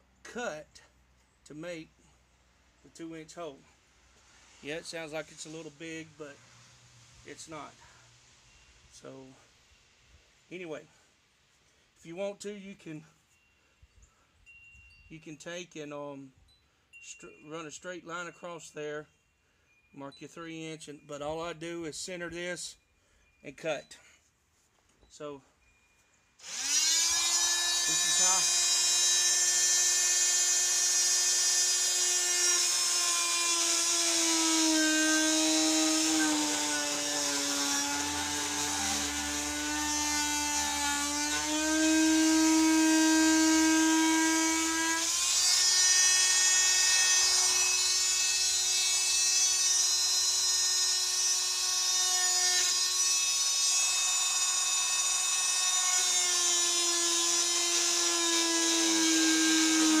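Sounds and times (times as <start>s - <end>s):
power tool cutting plastic pipe: 26.4s - 60.0s.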